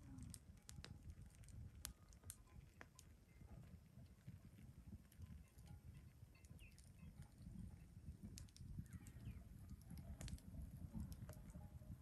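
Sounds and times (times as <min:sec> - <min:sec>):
wood fire crackling and popping: 0:00.0 - 0:12.0
faint bird chirps: 0:05.1 - 0:10.4.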